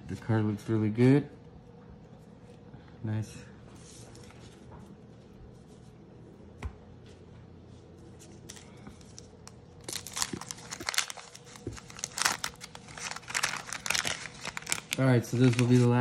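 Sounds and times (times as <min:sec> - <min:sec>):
wax paper wrapper tearing and crinkling: 0:08.4 - 0:16.0.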